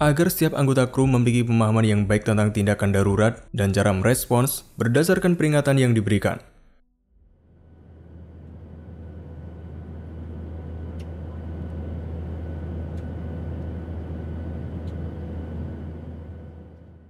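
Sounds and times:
engine-room machinery drone: 0:07.2 - 0:17.0.

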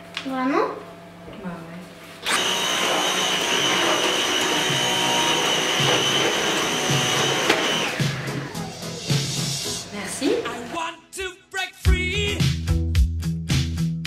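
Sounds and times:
stick vacuum cleaner whine: 0:02.2 - 0:09.9.

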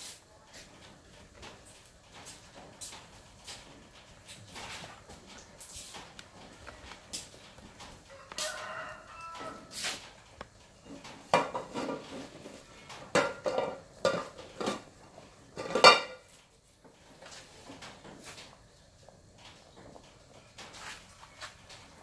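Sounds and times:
rooster crowing: 0:08.0 - 0:10.0
pots and utensils clinking: 0:10.8 - 0:18.5.

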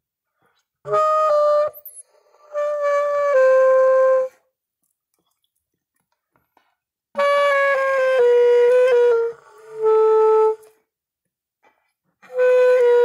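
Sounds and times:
wind instrument held notes: 0:00.8 - 0:04.4, 0:07.2 - 0:10.8, 0:12.2 - 0:13.0.

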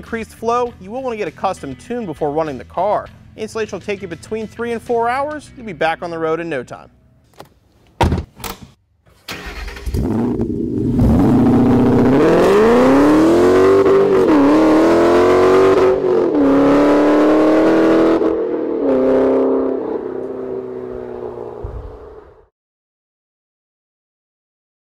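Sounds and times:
car engine starting and revving: 0:09.2 - 0:22.5.

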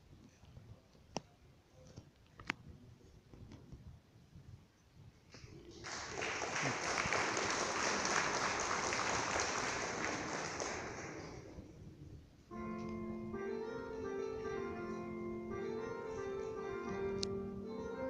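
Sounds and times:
audience applauding: 0:05.7 - 0:11.6
instrumental music: 0:12.5 - 0:18.0.

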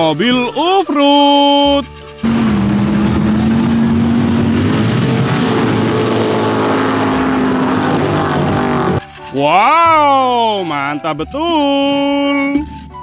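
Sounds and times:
buggy engine revving high: 0:02.2 - 0:09.2.

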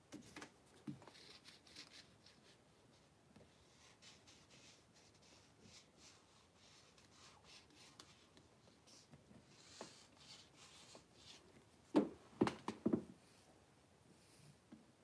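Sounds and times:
faint scratching and rustling: 0:00.1 - 0:11.8.

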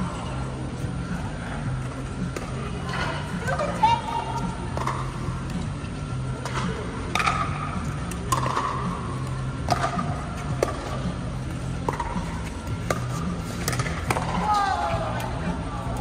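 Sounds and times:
steady low hum: 0:00.0 - 0:16.0
ball popping off paddles: 0:06.4 - 0:08.9, 0:09.6 - 0:10.9, 0:12.9 - 0:14.5
ball bouncing on court: 0:08.3 - 0:09.0, 0:09.6 - 0:11.0, 0:11.8 - 0:14.5.

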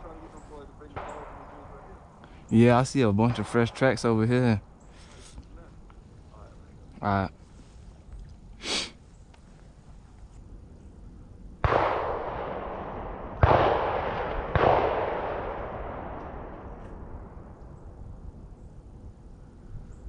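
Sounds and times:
shotgun shots echoing: 0:00.0 - 0:02.0, 0:02.7 - 0:04.5, 0:11.6 - 0:17.6.

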